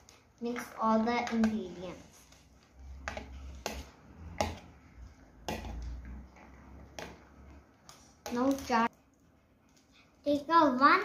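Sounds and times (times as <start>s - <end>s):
spoon stirring fruit in bowl: 0.0s - 9.9s
spoon knocking plastic bowl: 5.4s - 6.1s.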